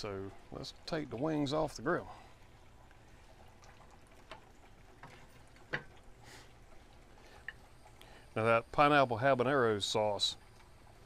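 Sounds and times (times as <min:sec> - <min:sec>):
faint background hiss: 0:00.0 - 0:11.0.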